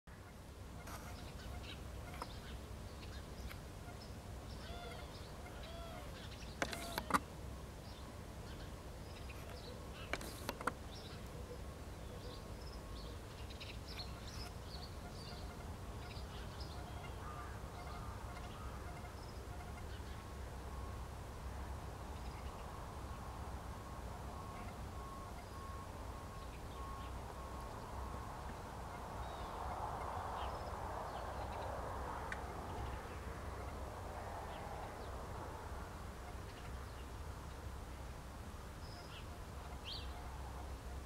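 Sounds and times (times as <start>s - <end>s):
distant birds calling: 0.1s - 41.0s.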